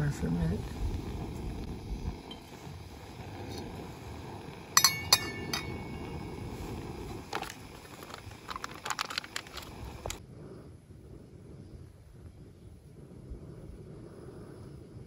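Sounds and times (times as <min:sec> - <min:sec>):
hard objects clinking: 0:04.8 - 0:06.4, 0:07.2 - 0:10.2.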